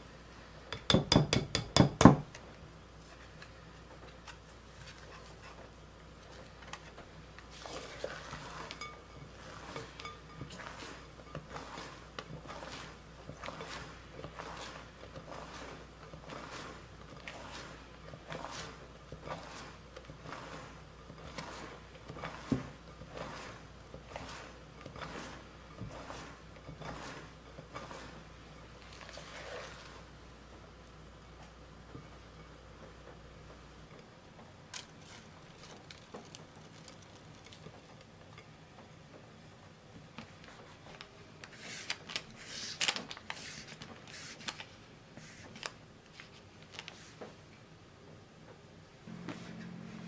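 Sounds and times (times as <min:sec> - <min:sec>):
spatula tapping cake tin: 0:00.7 - 0:02.2
spatula scraping batter: 0:03.0 - 0:30.3, 0:40.2 - 0:47.3.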